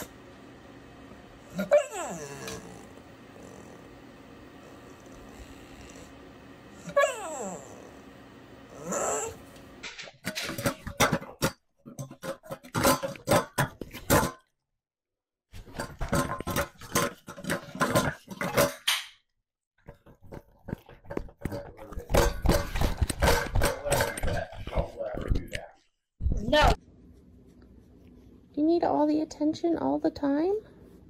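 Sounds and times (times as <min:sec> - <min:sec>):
dog whining: 0:01.4 - 0:04.0, 0:04.6 - 0:09.6
clinking against metal bowls: 0:10.2 - 0:14.4, 0:15.8 - 0:18.9
dogs chewing and slurping: 0:19.8 - 0:25.3.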